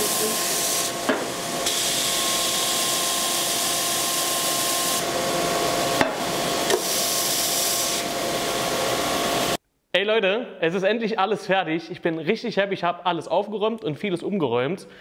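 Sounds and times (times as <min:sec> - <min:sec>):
wooden block being sanded: 0:00.0 - 0:08.1
belt sander running: 0:00.0 - 0:09.6.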